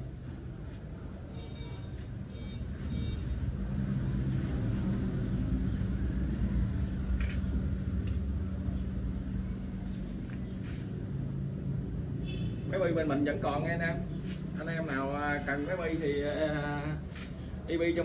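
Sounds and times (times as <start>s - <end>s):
vehicle engine humming: 2.7s - 16.0s.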